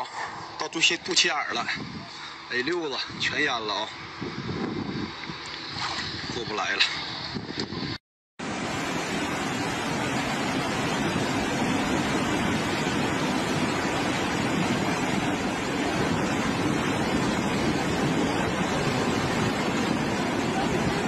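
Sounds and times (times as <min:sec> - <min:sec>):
flooded river rushing: 0:08.4 - 0:21.0.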